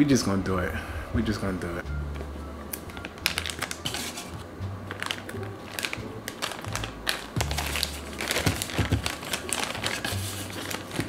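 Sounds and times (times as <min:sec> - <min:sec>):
plastic bag crinkling: 0:02.9 - 0:04.3, 0:04.9 - 0:11.0.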